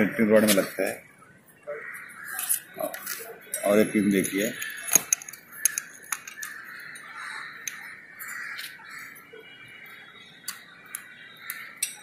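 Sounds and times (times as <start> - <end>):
metal clicks and taps: 4.6 - 6.6.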